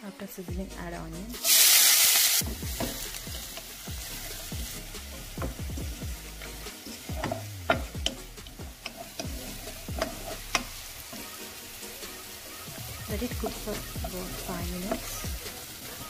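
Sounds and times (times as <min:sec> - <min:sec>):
onions sizzling in hot oil: 0:01.3 - 0:16.0
wooden spatula scraping pan: 0:02.5 - 0:11.5.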